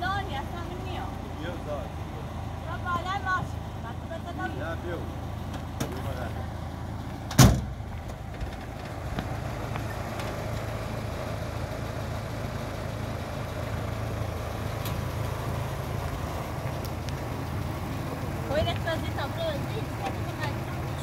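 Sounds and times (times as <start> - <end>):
vehicle engine running: 0.0 - 21.0
loud thump: 7.3 - 7.8.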